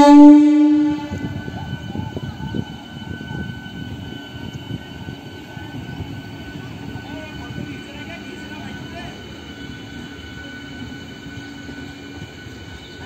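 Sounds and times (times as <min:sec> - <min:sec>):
train horn steady note: 0:00.0 - 0:06.2
train wheels rumbling on track: 0:00.0 - 0:13.0.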